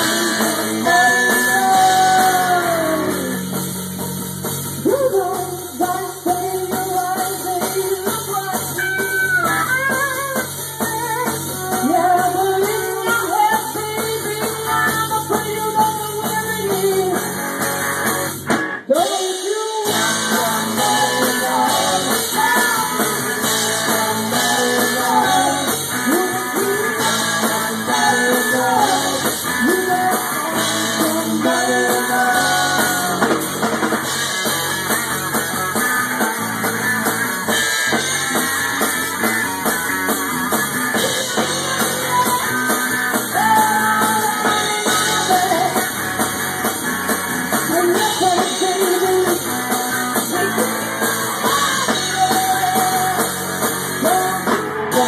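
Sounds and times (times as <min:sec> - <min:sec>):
woman singing: 0:00.0 - 0:03.4, 0:04.8 - 0:17.4, 0:18.9 - 0:33.4, 0:43.2 - 0:45.9, 0:47.7 - 0:50.7, 0:51.4 - 0:53.4, 0:54.0 - 0:55.0
drum kit: 0:00.0 - 0:55.0
electric guitars: 0:00.0 - 0:55.0.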